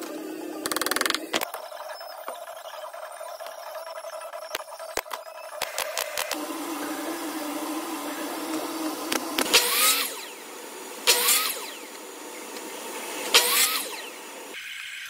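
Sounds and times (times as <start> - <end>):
miter saw cutting wood: 4.0 - 14.6.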